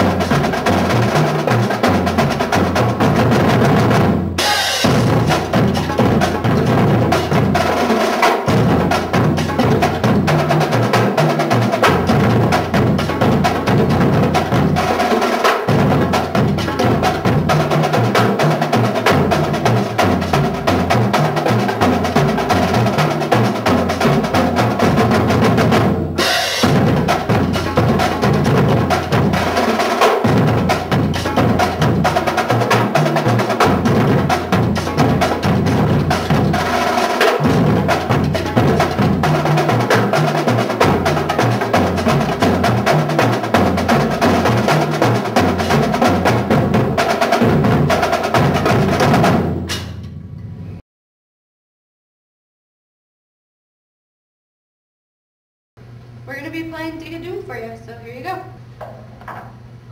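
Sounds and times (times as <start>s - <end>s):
rapid snare drum strokes: 0.0s - 50.2s
tenor drums: 0.0s - 50.6s
tuned bass drums: 1.9s - 7.8s, 23.6s - 29.6s, 30.3s - 36.8s.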